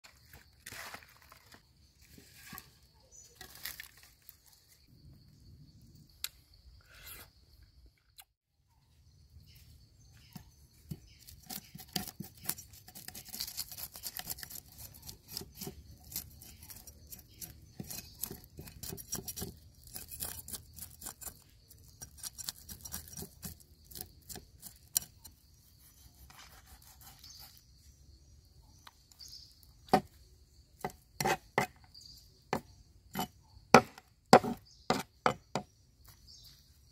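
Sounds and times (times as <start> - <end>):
leafy greens rustling and tearing: 3.3 - 4.7
cleaver scraping fish scales: 6.8 - 7.3, 10.9 - 27.6, 31.2 - 31.6
cleaver chopping on board: 33.2 - 35.7.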